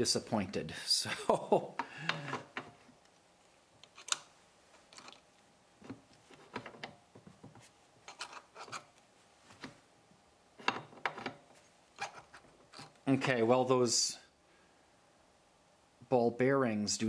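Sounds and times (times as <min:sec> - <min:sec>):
metallic clicks and scrapes: 0:03.8 - 0:07.0, 0:08.0 - 0:09.0, 0:12.0 - 0:13.0.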